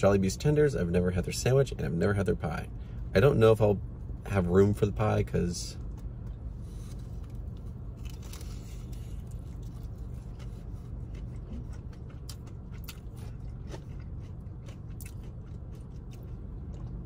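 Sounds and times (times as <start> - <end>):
steady low hum: 0.0 - 17.0
crunchy chewing: 5.8 - 17.0.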